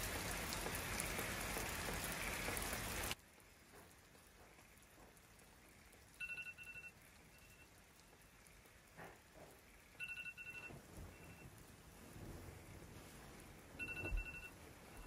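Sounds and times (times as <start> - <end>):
electronic alarm beeping: 6.2 - 7.7, 10.0 - 11.4, 13.8 - 15.0.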